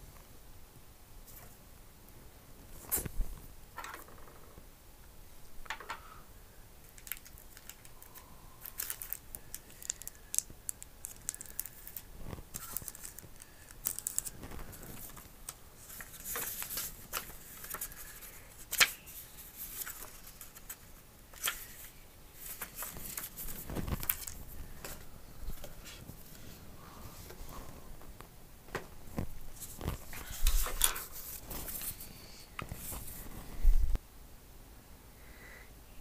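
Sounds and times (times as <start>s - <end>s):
paper rustling: 7.0s - 26.6s, 28.8s - 33.6s.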